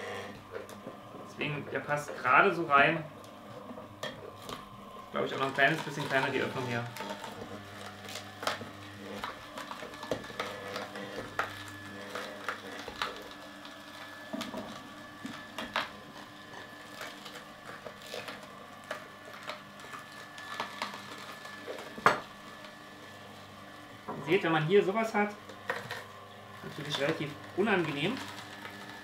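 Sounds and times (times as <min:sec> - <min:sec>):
juicer motor hum: 0:00.0 - 0:29.0
carrots crunching and cracking: 0:00.4 - 0:23.3, 0:24.1 - 0:29.0.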